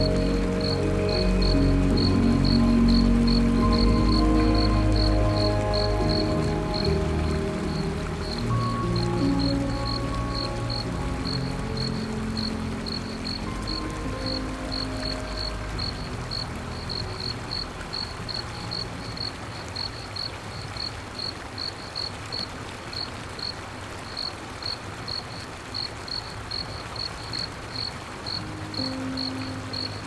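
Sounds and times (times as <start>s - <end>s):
cricket chirping: 0.0s - 6.9s
low music tones: 0.0s - 20.2s, 28.0s - 30.0s.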